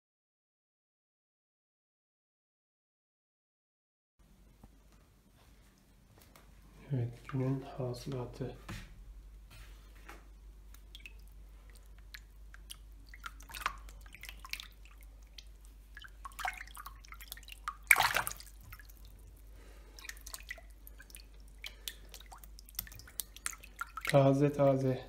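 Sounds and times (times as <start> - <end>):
water splashing and dripping in tub: 5.7 - 8.8, 9.9 - 25.0.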